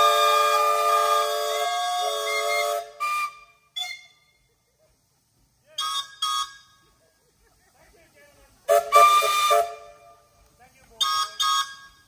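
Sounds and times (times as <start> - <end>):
steam whistles chord: 0.0 - 4.3, 8.7 - 10.2
short steam whistle toots: 0.0 - 4.4, 5.7 - 6.8, 8.7 - 10.3, 11.0 - 12.0.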